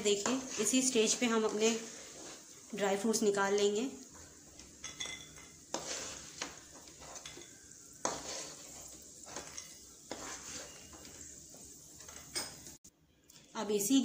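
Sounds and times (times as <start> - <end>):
spatula scraping a pan: 0.0 - 2.7, 3.6 - 12.7
low sizzle: 0.0 - 14.0.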